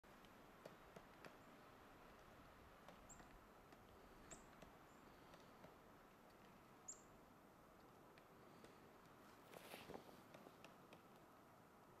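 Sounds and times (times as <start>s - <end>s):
woodpecker tapping: 0.1s - 11.4s
small bird chirping: 2.9s - 3.4s, 4.2s - 5.2s, 6.8s - 7.2s.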